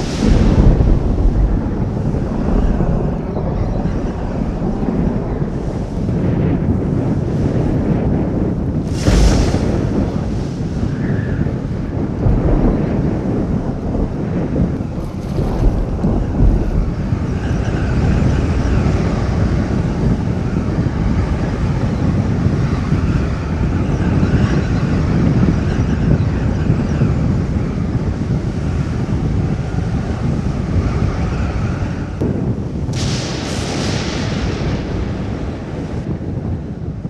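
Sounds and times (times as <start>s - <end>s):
waves splashing: 0.0s - 22.6s
wind buffeting microphone: 0.0s - 37.0s.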